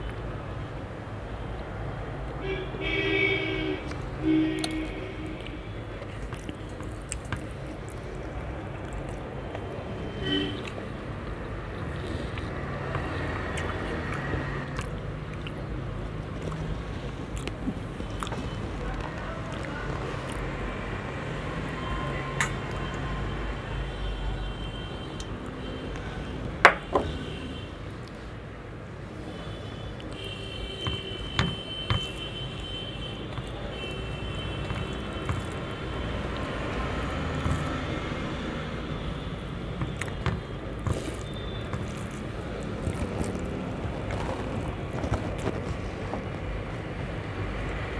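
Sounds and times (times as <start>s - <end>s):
soft chewing: 4.6s - 9.8s, 10.5s - 20.5s, 29.9s - 37.9s, 39.4s - 46.4s
fingers mixing food on steel plate: 30.0s - 46.2s.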